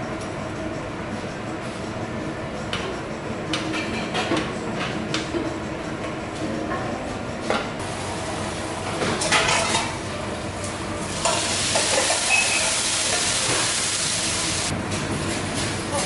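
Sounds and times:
food sizzling on a griddle: 11.1 - 14.7.

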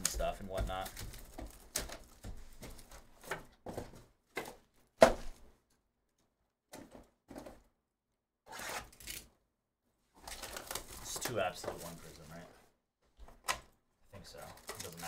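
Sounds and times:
plastic wrap crinkling: 0.0 - 3.0, 10.2 - 12.6, 14.2 - 15.0.

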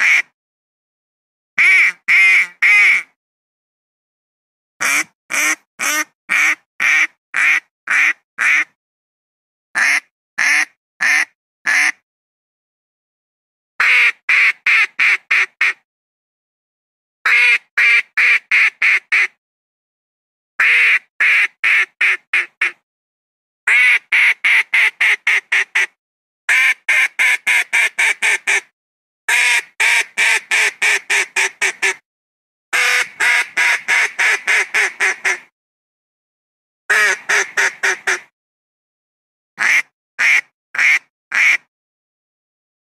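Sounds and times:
duck quacking: 0.0 - 0.3, 1.6 - 3.1, 4.8 - 8.8, 9.8 - 12.0, 13.8 - 15.8, 17.3 - 19.3, 20.6 - 22.8, 23.7 - 25.9, 29.3 - 32.0, 32.8 - 35.5, 36.9 - 38.3, 39.6 - 41.7.

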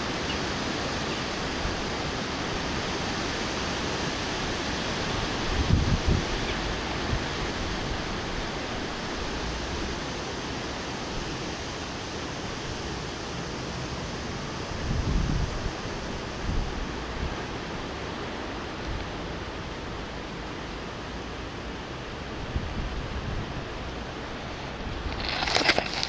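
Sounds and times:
wind blowing: 0.0 - 10.0, 22.3 - 26.0.

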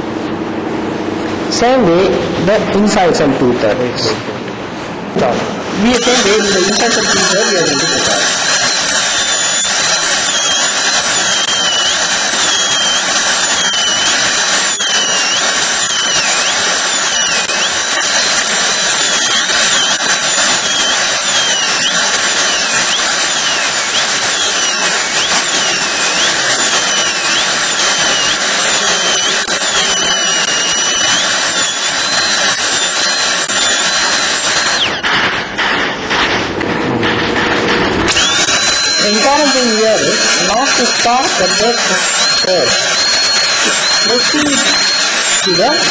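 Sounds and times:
dental drill whining: 5.7 - 36.3, 37.5 - 45.9.

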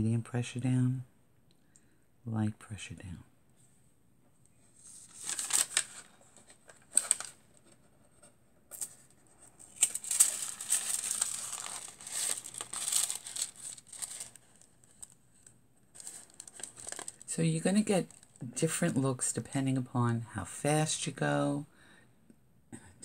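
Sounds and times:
foil and paper crinkling: 4.8 - 7.6, 8.8 - 18.4.

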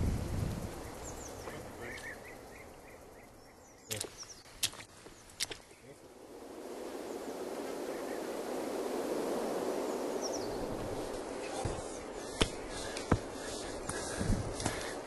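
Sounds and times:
steady rushing hiss: 0.0 - 15.0
hiking boots stepping on rock: 11.6 - 15.0.

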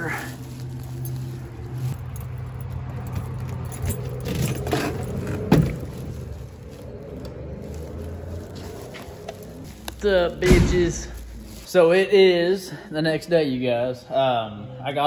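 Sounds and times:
keys jangling: 0.0 - 6.6.

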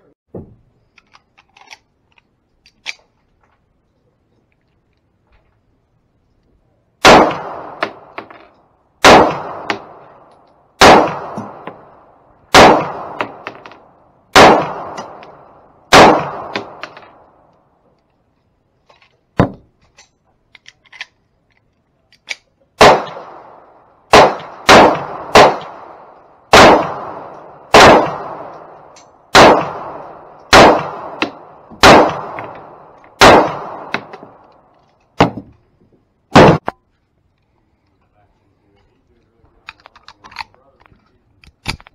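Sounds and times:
pistol shots echoing: 7.0 - 8.4, 9.0 - 17.4, 22.8 - 35.4, 36.3 - 36.7.

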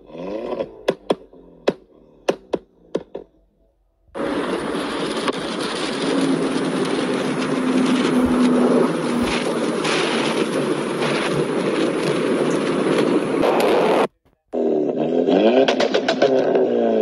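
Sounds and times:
car driven hard at speed: 0.0 - 3.3, 4.2 - 17.0
car exhaust popping and cracking: 0.0 - 3.4, 4.1 - 16.9
wind and road noise: 4.1 - 14.1.

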